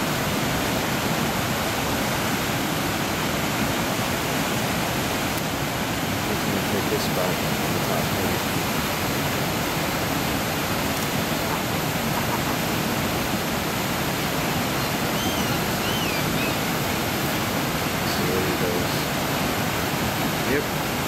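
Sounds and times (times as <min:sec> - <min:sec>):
waterfall and rapids rushing: 0:00.0 - 0:21.0
faint high wavering call: 0:14.7 - 0:16.7.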